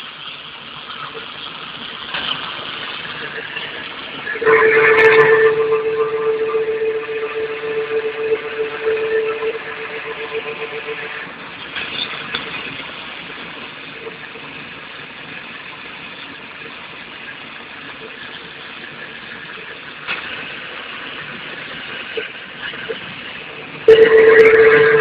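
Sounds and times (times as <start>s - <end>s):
pointing machine humming: 4.3s - 11.3s, 23.9s - 25.0s.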